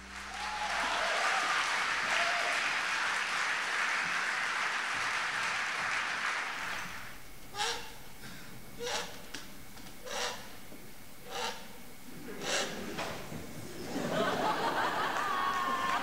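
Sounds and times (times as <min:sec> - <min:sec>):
audience applauding: 0:00.0 - 0:07.2, 0:13.9 - 0:16.0.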